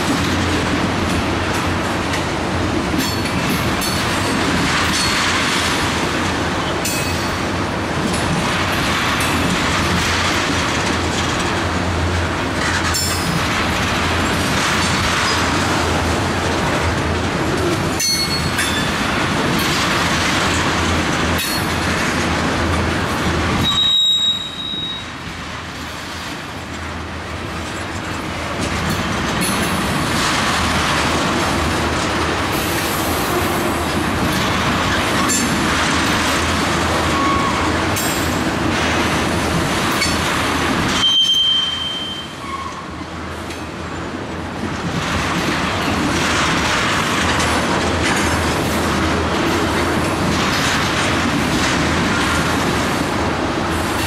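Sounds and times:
wheels clicking over rail joints: 0.0s - 24.9s, 26.2s - 41.9s
train wheels rumbling: 0.0s - 54.0s
high wheel squeal: 23.6s - 25.1s, 41.0s - 43.0s.

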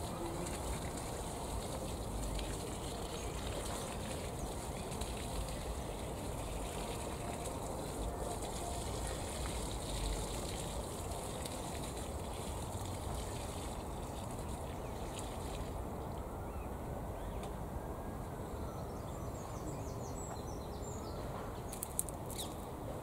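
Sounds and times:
water pouring from watering can: 0.0s - 15.8s.

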